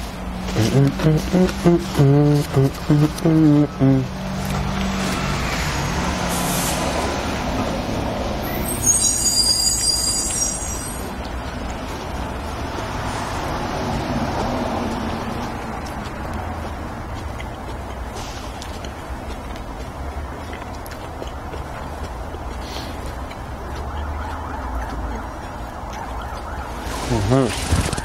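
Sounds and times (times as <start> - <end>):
heavy vehicle passing: 0.0 - 8.9, 10.8 - 28.0
high-pitched brake squeal: 8.4 - 11.1.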